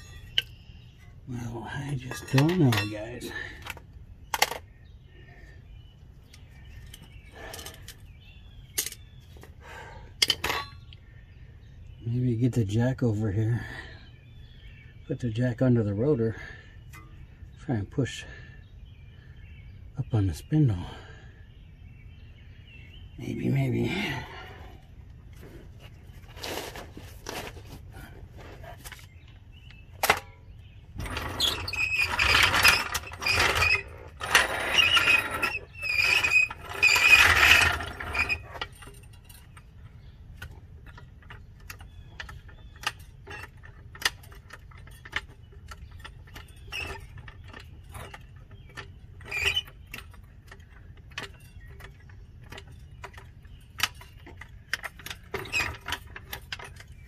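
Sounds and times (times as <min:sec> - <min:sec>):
jack scraping and squealing: 0:00.0 - 0:03.7, 0:31.0 - 0:39.7, 0:40.4 - 0:57.0.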